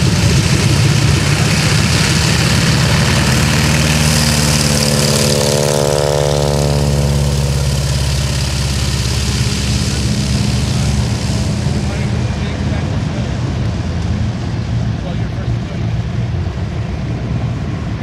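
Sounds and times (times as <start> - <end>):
biplane radial engine taxiing: 0.0 - 18.0.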